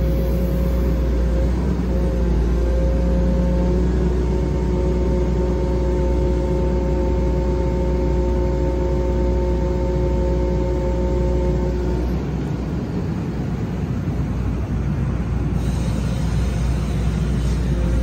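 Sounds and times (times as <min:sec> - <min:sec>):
hydraulic whine: 0:00.0 - 0:13.2, 0:15.4 - 0:18.0
excavator diesel engine rumbling: 0:00.0 - 0:18.0.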